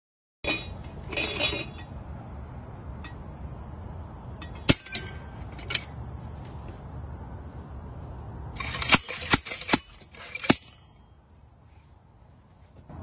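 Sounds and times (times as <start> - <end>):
low background noise: 0.5 - 13.0
sharp metallic clink: 4.4 - 6.0, 8.6 - 11.2.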